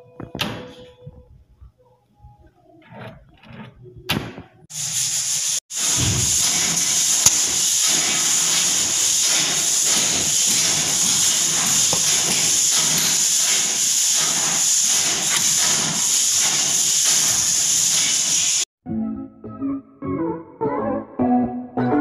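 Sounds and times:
steady loud hiss: 4.7 - 18.7.

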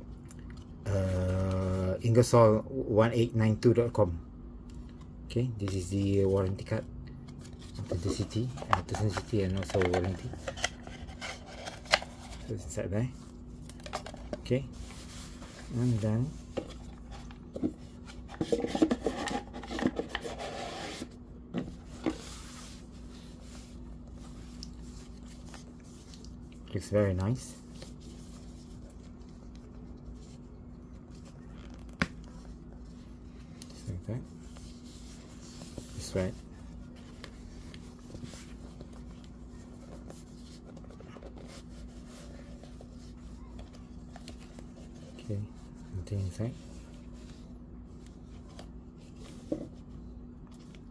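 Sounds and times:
steady low hum: 0.0 - 50.9
hands rubbing and scraping boxes: 7.3 - 12.6, 13.7 - 26.3.

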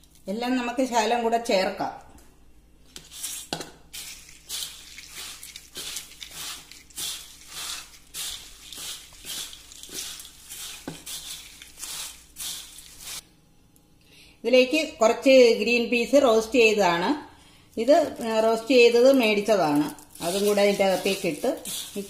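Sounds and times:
snack rattling in steel bowl: 4.0 - 13.2.

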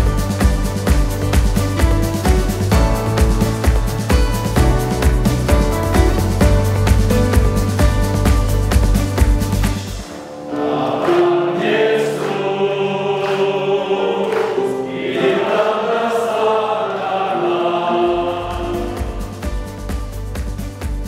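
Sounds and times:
men's choir singing a hymn: 10.4 - 19.5.

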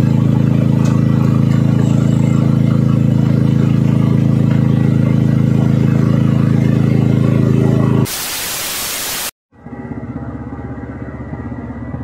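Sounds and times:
boat engine humming: 0.0 - 8.0.

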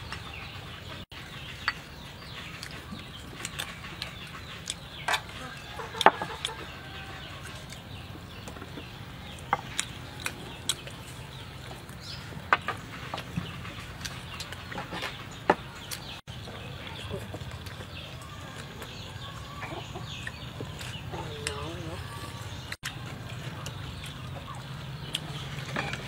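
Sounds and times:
chickens clucking: 0.0 - 26.0
utensils and dishes clinking: 25.2 - 26.0.

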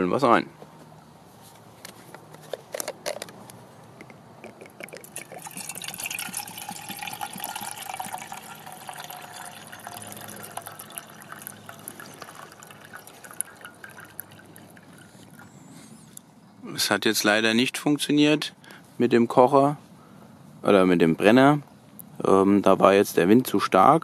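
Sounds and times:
water pouring into metal tin: 5.0 - 15.4.

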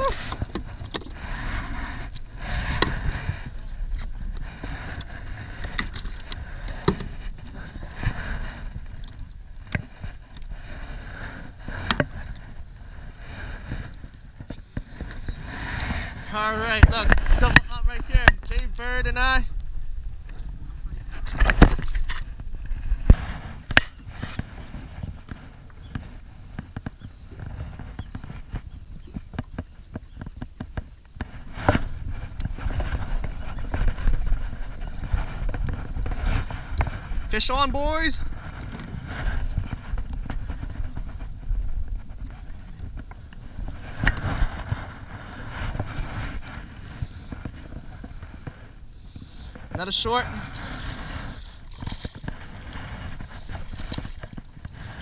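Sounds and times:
wind and water rumble: 0.0 - 55.0
water sloshing: 49.4 - 55.0.

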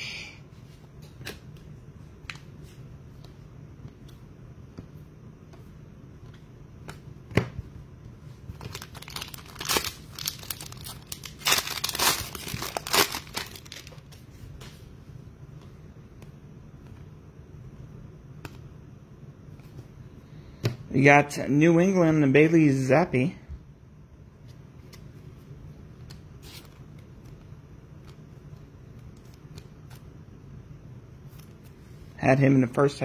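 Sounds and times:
foil wrapper tearing and crinkling: 8.6 - 14.1.

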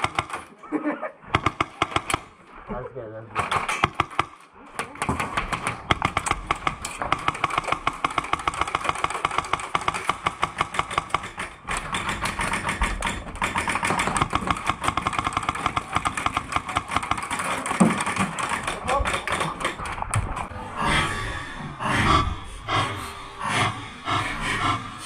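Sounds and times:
airsoft guns firing: 0.0 - 0.5, 1.2 - 2.4, 3.3 - 20.5.

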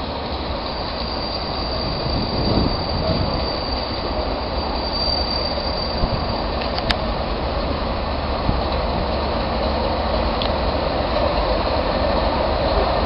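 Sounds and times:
high-pitched whine: 0.0 - 6.9
diesel locomotive engine rumble: 0.0 - 13.0.

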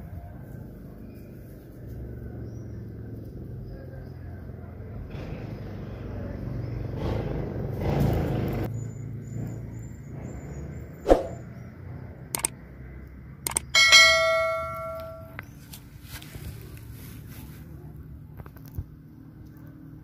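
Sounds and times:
bright ringing bell chime: 13.5 - 15.4
clicks: 13.5 - 15.4.

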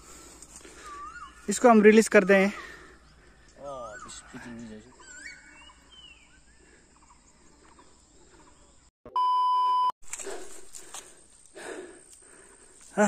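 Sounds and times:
faint outdoor ambience: 0.0 - 8.9, 10.1 - 13.0
faint chirps: 0.1 - 9.9
test-tone beep: 9.1 - 9.9.

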